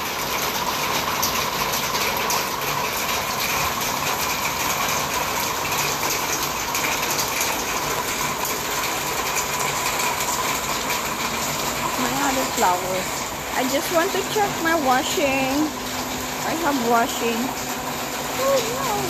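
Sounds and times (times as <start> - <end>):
heavy rain pouring: 0.0 - 19.0.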